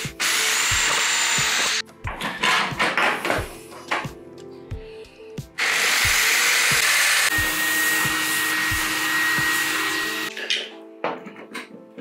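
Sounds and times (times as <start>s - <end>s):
power drill boring through steel: 0.0s - 1.8s, 5.6s - 10.3s
background music with beat: 0.0s - 10.4s.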